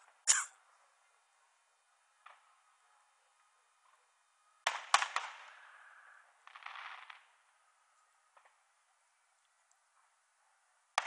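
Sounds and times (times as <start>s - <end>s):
distant firework pops: 4.7s - 5.6s, 6.4s - 7.4s.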